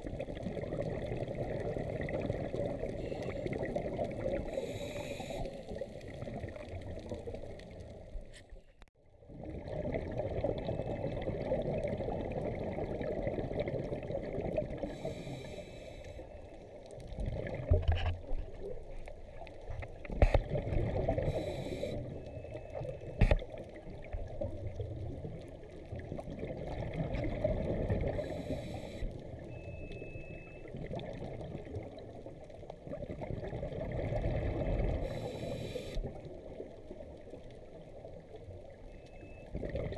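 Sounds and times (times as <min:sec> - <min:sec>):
exhaled bubbles rushing: 0:00.0 - 0:04.5, 0:05.6 - 0:08.1, 0:09.2 - 0:15.0, 0:17.0 - 0:17.8, 0:20.4 - 0:21.4, 0:23.7 - 0:28.3, 0:30.6 - 0:35.1, 0:39.5 - 0:39.9
diver inhaling through regulator: 0:04.4 - 0:05.8, 0:14.8 - 0:16.3, 0:21.2 - 0:22.1, 0:28.1 - 0:29.2, 0:35.0 - 0:36.1.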